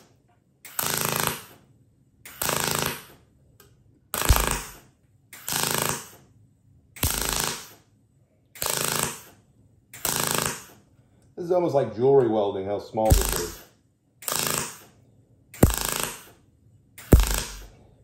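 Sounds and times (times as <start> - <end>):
welding arc bursts: 4.2 - 6.2, 7.0 - 7.8, 10.0 - 10.8, 13.1 - 14.9, 15.6 - 16.4, 17.0 - 17.8.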